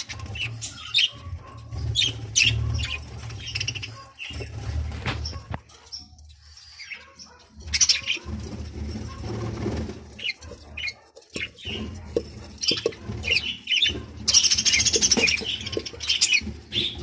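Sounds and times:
budgerigar chirping: 0.0s - 4.4s, 5.3s - 8.3s, 12.6s - 17.0s.

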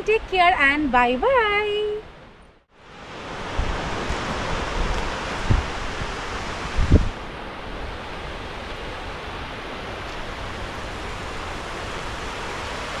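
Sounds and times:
waves rushing on beach: 2.8s - 13.0s.

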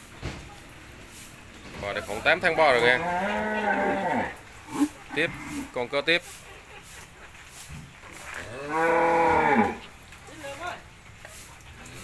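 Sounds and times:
cow mooing: 2.8s - 5.7s, 8.4s - 9.8s.

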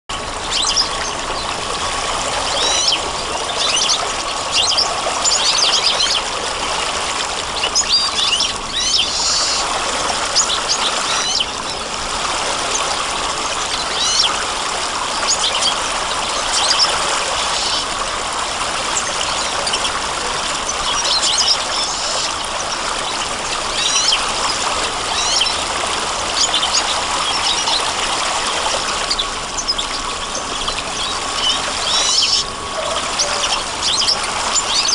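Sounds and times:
running water: 0.1s - 34.9s
birds chirping: 0.3s - 6.4s, 7.4s - 9.7s, 10.3s - 11.9s, 15.3s - 17.9s, 18.9s - 25.7s, 28.9s - 34.9s.

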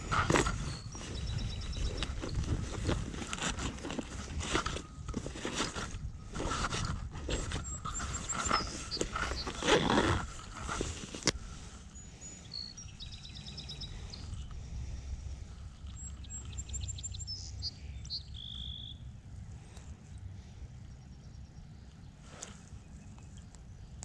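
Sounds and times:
small bird chirping: 0.0s - 3.2s, 7.3s - 10.8s, 11.9s - 14.6s, 15.7s - 19.1s
hands and clothing rustling: 0.0s - 11.8s
low wind rumble: 0.0s - 24.0s.

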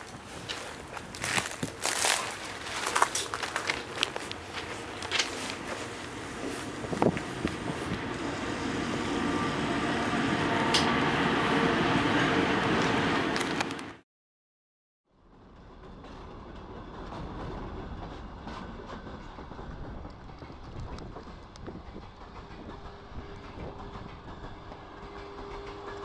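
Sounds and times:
crunching footsteps: 0.0s - 7.8s
railway wagon rolling: 0.0s - 14.0s, 15.2s - 26.0s.

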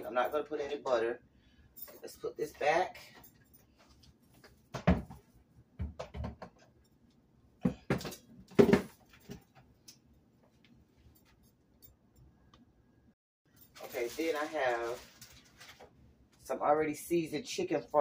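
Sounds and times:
kitchen knocks and clunks: 4.6s - 6.7s, 7.6s - 9.7s.

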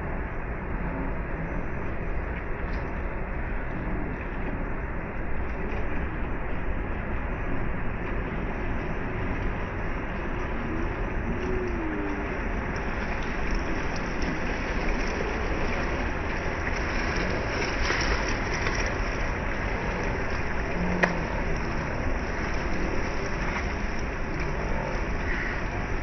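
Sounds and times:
wind rumbling on microphone: 0.0s - 26.0s
small waves lapping on shore: 8.4s - 26.0s.

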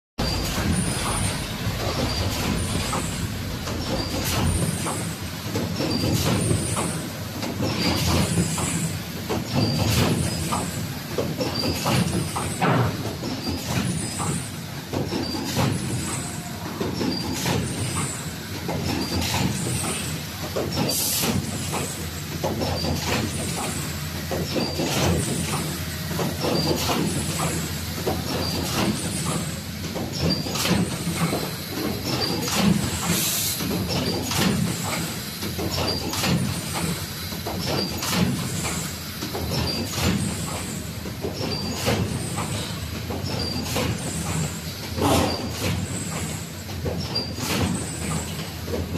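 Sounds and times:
machine drone: 0.2s - 6.9s.

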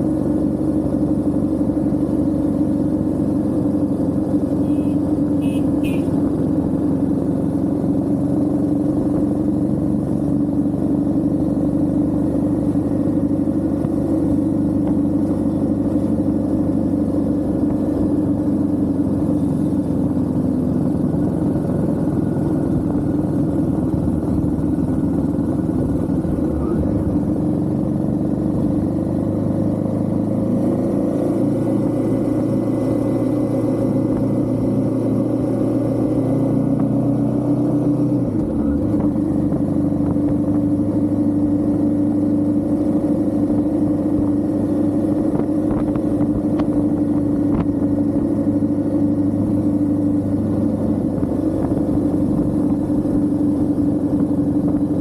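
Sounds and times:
motorcycle engine cruising: 0.0s - 55.0s.

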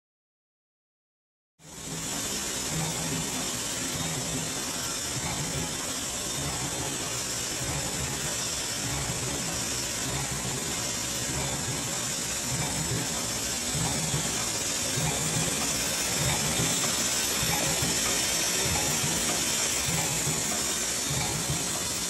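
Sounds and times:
machine mechanical clatter: 1.6s - 22.0s.

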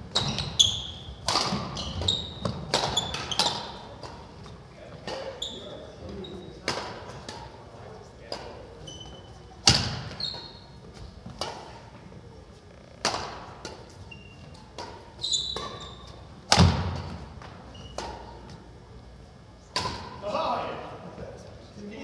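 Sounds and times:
sneakers squeaking: 0.0s - 7.6s, 8.3s - 20.2s
racket hitting shuttlecock: 1.2s - 4.2s, 9.6s - 10.2s, 11.3s - 11.8s, 13.0s - 15.8s, 16.4s - 17.3s, 17.9s - 18.4s, 19.7s - 20.2s.

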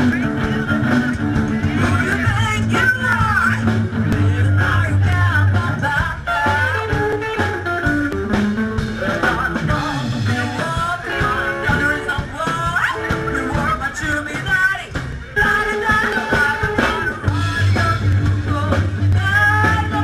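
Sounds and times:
person singing: 0.0s - 8.0s, 8.9s - 20.0s
plucked upright bass: 0.0s - 12.2s
live rock and roll band: 0.0s - 20.0s.

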